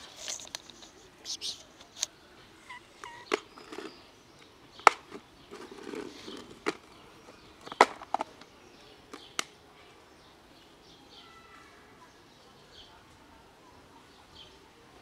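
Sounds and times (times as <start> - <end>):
dry kibble rattling in box: 3.3 - 4.0, 5.1 - 6.9.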